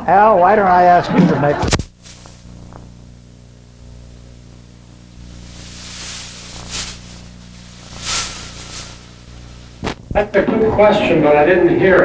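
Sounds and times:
low electrical hum: 0.0s - 12.0s
rustling: 5.2s - 10.1s
short swishes: 5.7s - 10.0s.

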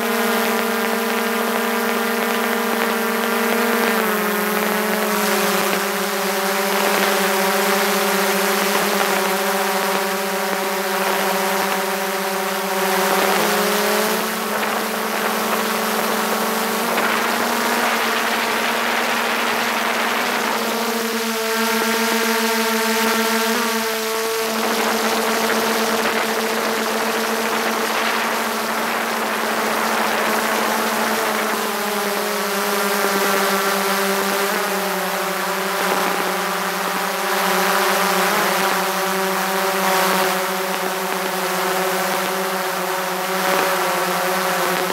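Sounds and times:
drone motors whining: 0.4s - 34.8s.

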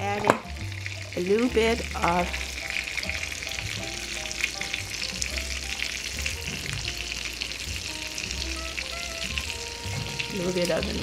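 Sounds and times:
batter sizzling in butter: 0.0s - 11.0s.

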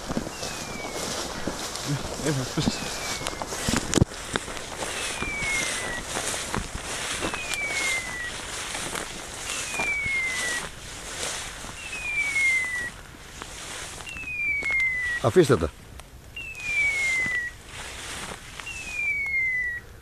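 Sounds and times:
steady rustling: 0.0s - 15.8s, 16.6s - 19.2s
descending whistle call: 0.3s - 1.3s, 2.2s - 3.9s, 4.8s - 6.4s, 7.0s - 8.6s, 9.4s - 10.7s, 11.8s - 13.0s, 14.0s - 15.6s, 16.4s - 17.6s, 18.6s - 19.9s.

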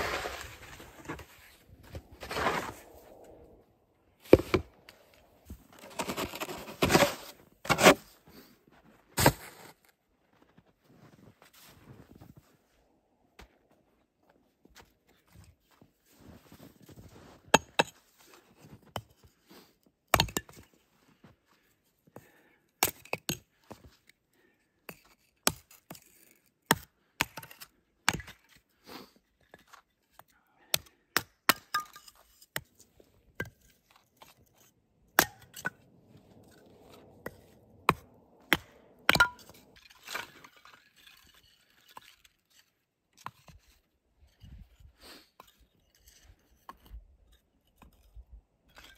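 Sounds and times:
axe chopping firewood: 7.7s - 8.0s, 30.7s - 32.7s, 35.1s - 35.8s, 36.5s - 40.3s.

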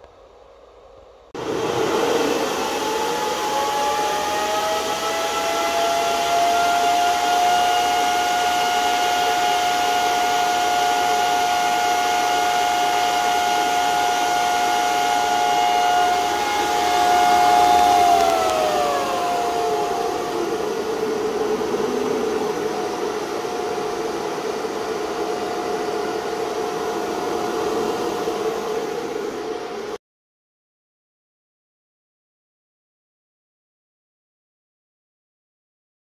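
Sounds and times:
cooling fans whirring: 0.0s - 30.0s.

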